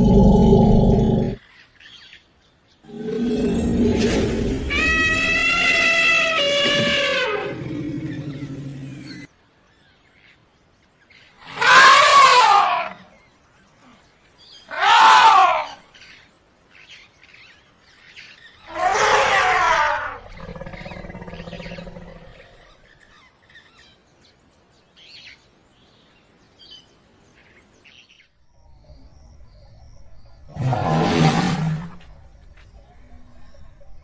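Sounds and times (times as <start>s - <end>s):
elephant low rumble: 0.0s - 1.4s, 2.9s - 9.3s, 18.7s - 22.9s, 28.6s - 34.0s
elephant trumpeting: 2.9s - 9.2s, 11.4s - 13.0s, 14.7s - 15.8s, 18.7s - 21.0s.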